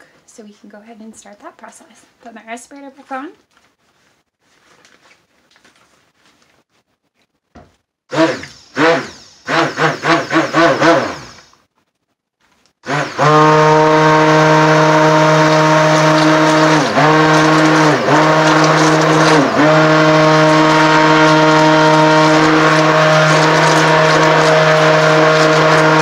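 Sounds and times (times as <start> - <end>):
stick blender motor running: 8.1 - 11.5, 12.8 - 26.0.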